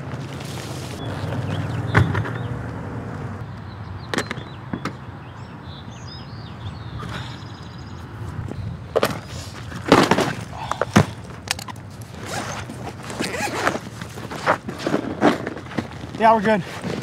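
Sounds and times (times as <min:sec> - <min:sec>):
birds chirping: 0:00.9 - 0:14.1.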